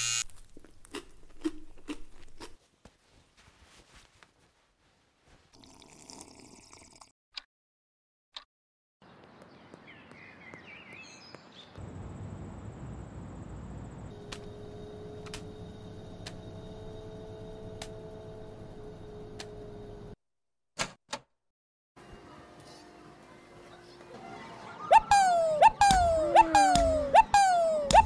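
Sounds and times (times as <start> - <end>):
bird-like chirps: 9.0 - 11.8.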